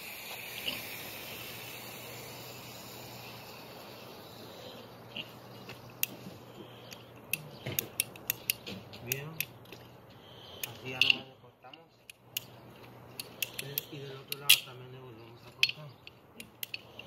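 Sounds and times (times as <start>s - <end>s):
steady hiss: 0.0s - 17.0s
pipe cutter ratchet clicking: 6.9s - 9.6s, 10.6s - 14.8s, 15.5s - 17.0s.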